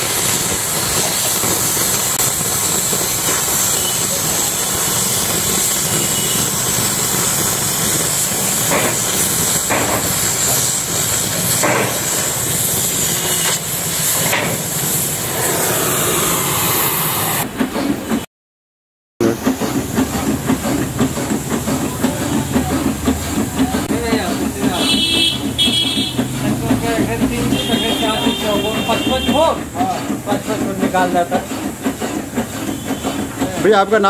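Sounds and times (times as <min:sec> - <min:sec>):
cutting torch hissing: 0:00.0 - 0:17.5.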